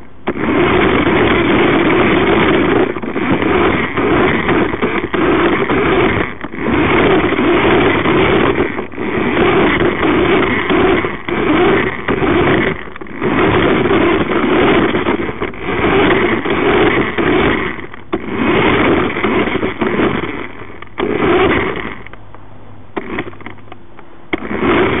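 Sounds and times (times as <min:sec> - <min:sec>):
toy car electric motor whirring: 0:00.2 - 0:22.2, 0:23.0 - 0:23.7, 0:24.3 - 0:25.0.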